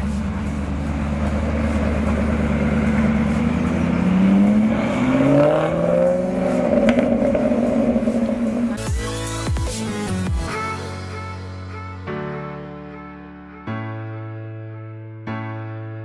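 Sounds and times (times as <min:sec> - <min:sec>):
car engine pulling away: 0:00.0 - 0:08.9.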